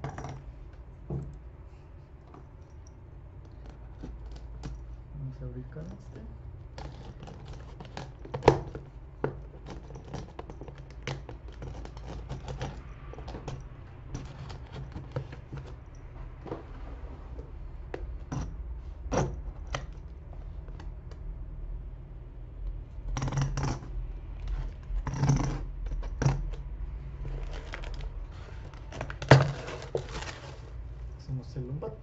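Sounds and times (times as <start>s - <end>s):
tape and cardboard scraping: 27.2s - 30.8s.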